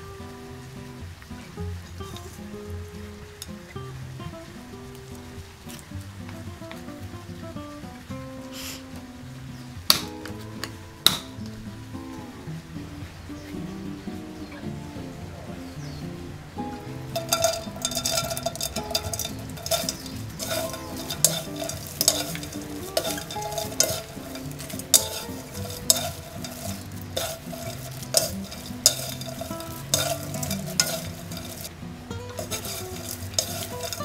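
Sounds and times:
small fish rattling in frying pan: 17.0s - 34.0s.

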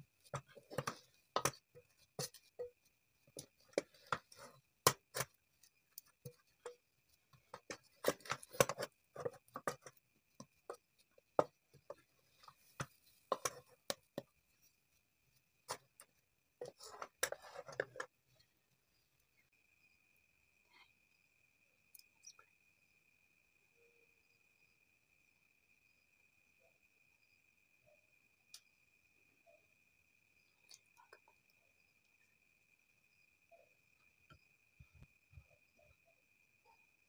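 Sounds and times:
spatula knocking metal pot: 0.3s - 5.4s, 6.0s - 14.3s.

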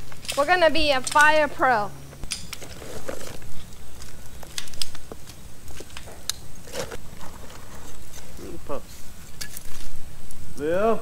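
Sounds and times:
wood fire crackling and popping: 0.0s - 11.0s
paper bag rustling: 2.6s - 10.0s.

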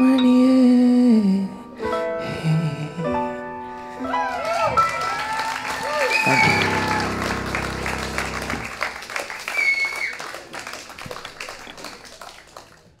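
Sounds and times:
audience applauding: 3.7s - 13.0s
band chord ringing out: 6.3s - 8.8s.

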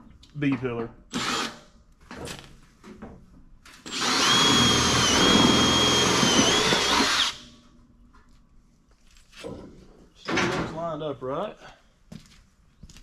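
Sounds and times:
cordless drill motor whining: 1.1s - 1.5s, 3.8s - 7.5s.

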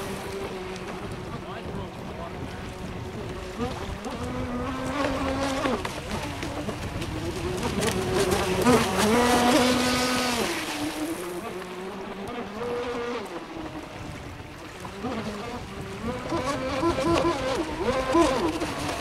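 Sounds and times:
model speedboat motor running: 0.0s - 19.0s.

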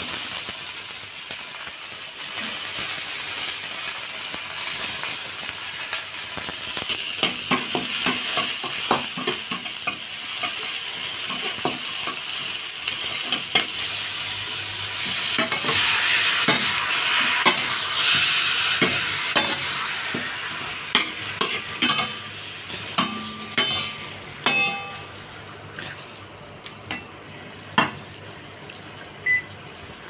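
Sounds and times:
food sizzling in hot oil: 0.0s - 25.6s
metal spatula scraping wok: 23.0s - 25.0s.

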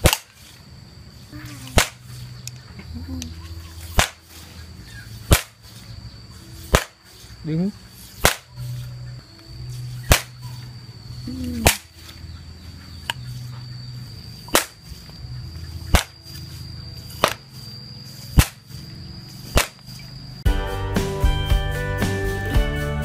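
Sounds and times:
bamboo pop gun popping: 0.0s - 0.4s, 1.7s - 2.0s, 3.9s - 4.2s, 5.3s - 5.6s, 6.7s - 7.0s, 8.2s - 8.5s, 10.1s - 10.4s, 11.5s - 11.9s, 14.5s - 14.8s, 15.9s - 16.2s, 18.4s - 18.6s, 19.5s - 19.8s.

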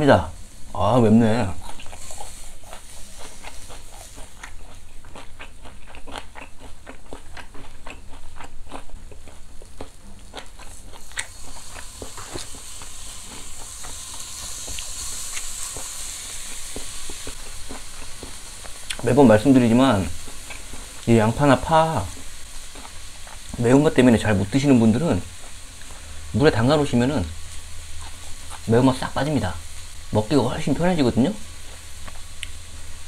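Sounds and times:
meat sizzling on a grill: 0.0s - 33.0s
crunchy chewing of raw onion: 1.4s - 23.7s, 28.0s - 28.7s.

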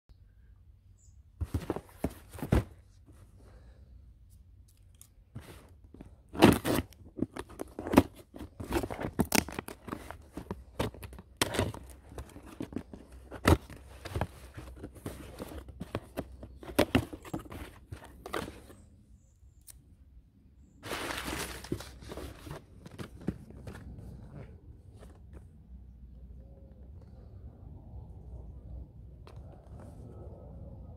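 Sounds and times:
packing paper rustling: 20.8s - 23.8s.

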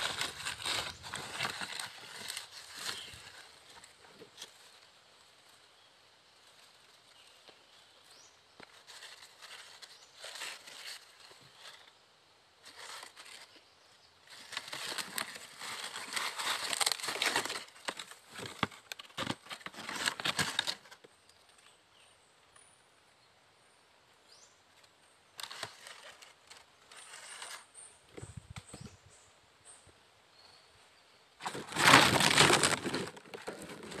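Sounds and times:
dry leaves rustling and crackling: 0.0s - 5.7s, 6.4s - 12.0s, 12.6s - 13.6s, 14.2s - 21.0s, 25.3s - 27.7s, 31.4s - 34.0s.

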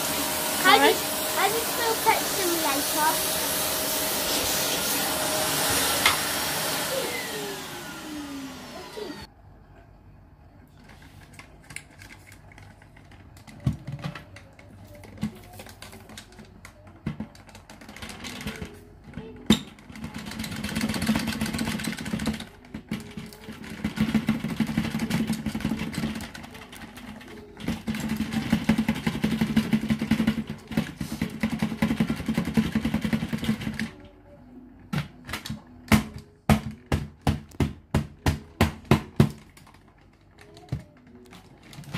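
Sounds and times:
vacuum motor winding down: 0.0s - 9.3s
debris rattling in plastic bin: 19.8s - 33.8s.

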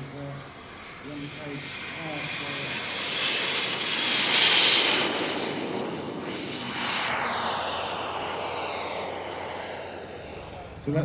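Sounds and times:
model aircraft engine passing: 0.0s - 11.0s.

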